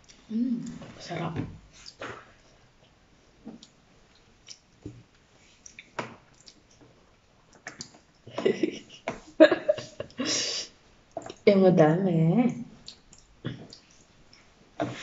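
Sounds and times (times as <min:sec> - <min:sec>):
person chewing food: 0:05.4 - 0:08.3, 0:12.8 - 0:15.0.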